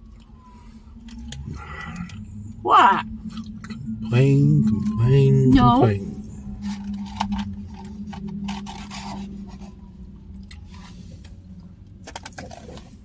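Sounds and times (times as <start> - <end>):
steady low hum: 0.0 - 13.0
person chewing: 3.2 - 5.3.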